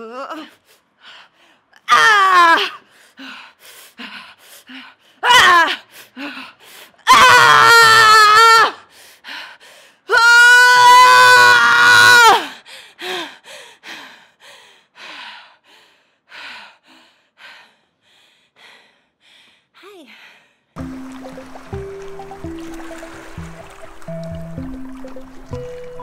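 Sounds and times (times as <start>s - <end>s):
woman screaming: 1.9s - 2.8s, 5.2s - 5.8s, 7.0s - 8.8s, 10.1s - 12.5s
panting breaths: 12.7s - 20.7s.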